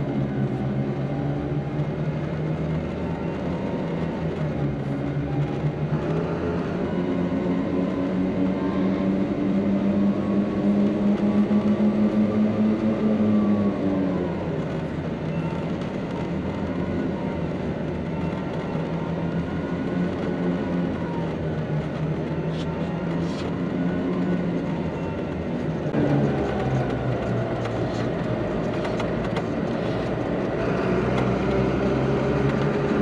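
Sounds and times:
truck engine running: 14.4 - 33.0.

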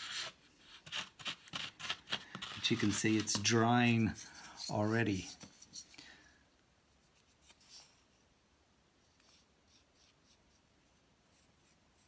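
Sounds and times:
sculpting tool scraping: 0.0 - 6.0.

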